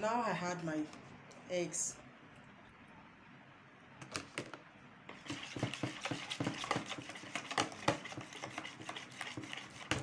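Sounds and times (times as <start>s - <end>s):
whisking clicks and scrapes in bowl: 5.1s - 10.0s.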